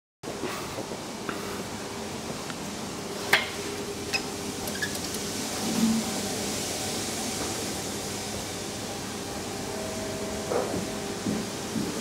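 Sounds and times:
steady background hum: 0:00.3 - 0:12.0
elevator clicks: 0:04.1 - 0:05.3.

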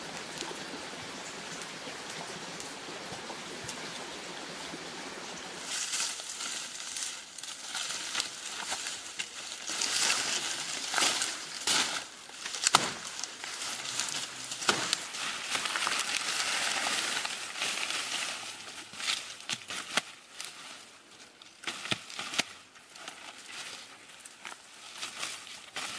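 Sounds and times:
dry leaves rustling and crackling: 0:00.0 - 0:25.9
twigs snapping: 0:05.6 - 0:20.8, 0:21.4 - 0:25.9.

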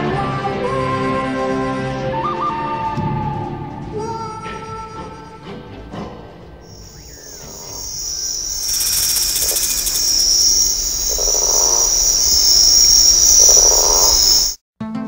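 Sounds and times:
crickets chirping: 0:06.6 - 0:14.6
lower insect calls: 0:06.7 - 0:14.6.

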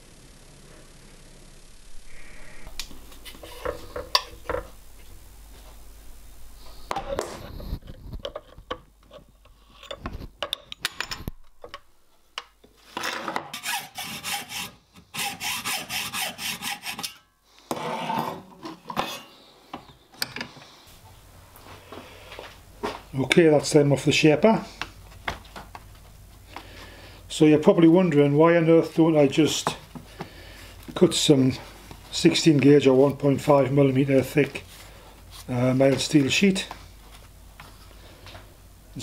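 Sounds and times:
hand file rasping on metal: 0:13.6 - 0:17.2.

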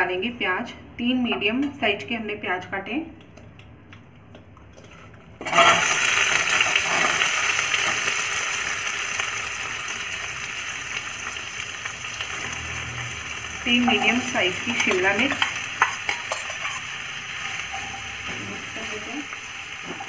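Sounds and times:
onion sizzling in hot oil: 0:05.4 - 0:20.0.

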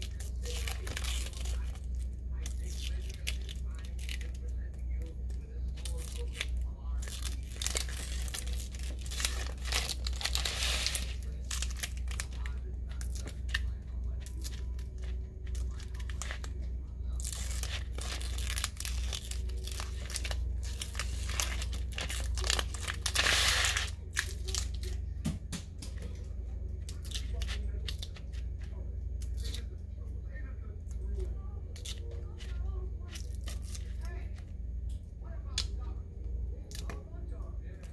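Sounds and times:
vinyl crinkling: 0:00.0 - 0:25.0
vinyl peeling off backing: 0:05.8 - 0:24.7.

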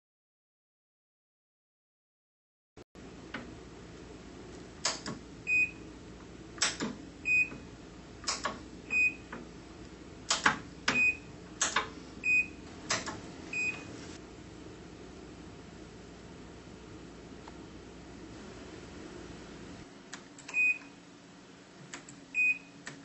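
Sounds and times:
welder beep: 0:05.4 - 0:05.9, 0:07.2 - 0:07.6, 0:08.8 - 0:09.4, 0:10.9 - 0:11.3, 0:12.2 - 0:12.6, 0:13.5 - 0:13.9, 0:20.5 - 0:21.0, 0:22.3 - 0:22.8
spot weld snap: 0:06.6 - 0:07.0, 0:08.2 - 0:08.6, 0:10.3 - 0:11.0.

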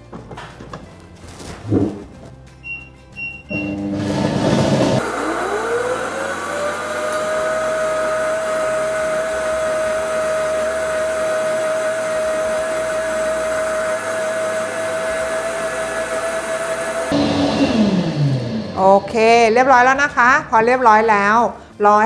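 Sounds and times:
blender motor whine: 0:03.5 - 0:19.3.

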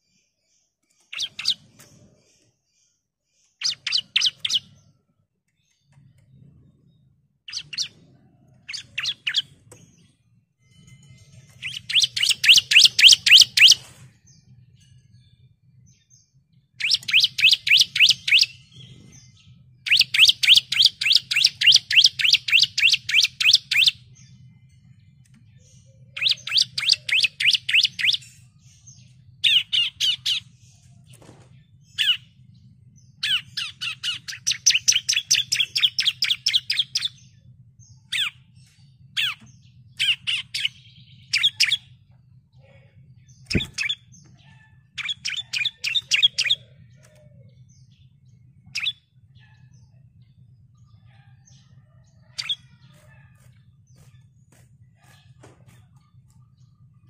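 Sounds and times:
bird calling rapid sharp notes: 0:11.6 - 0:13.8.

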